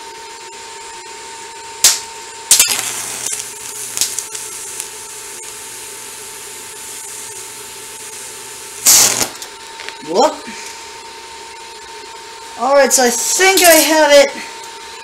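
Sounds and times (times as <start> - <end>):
welding arc crackle and hiss: 1.8 - 11.1, 12.6 - 14.4
faint welder hum: 1.8 - 14.8.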